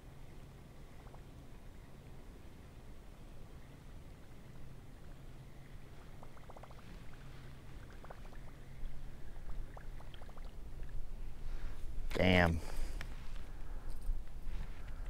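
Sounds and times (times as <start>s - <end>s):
water gurgling: 6.1s - 11.2s.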